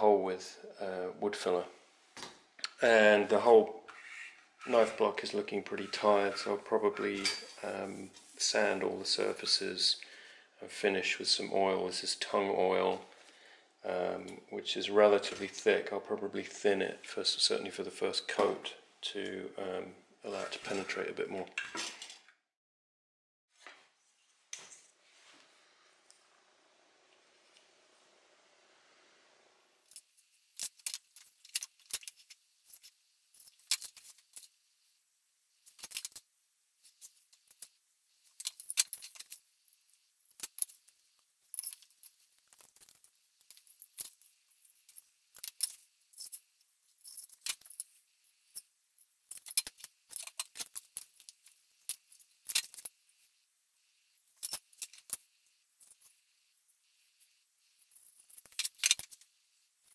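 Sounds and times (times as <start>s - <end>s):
metal tools clicking on wood: 37.0s - 39.4s, 49.3s - 53.0s, 57.9s - 59.2s.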